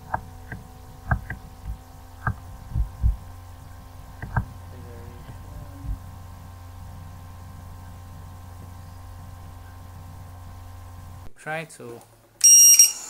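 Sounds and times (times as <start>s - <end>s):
low electrical hum: 0.0s - 13.0s
soft dull thumps: 0.1s - 3.3s, 4.1s - 6.1s.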